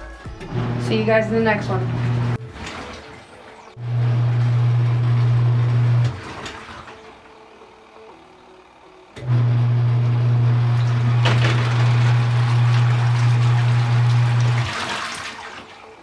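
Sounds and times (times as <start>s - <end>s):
washing machine motor humming: 0.3s - 16.0s
water churning: 0.6s - 7.4s, 10.4s - 16.0s.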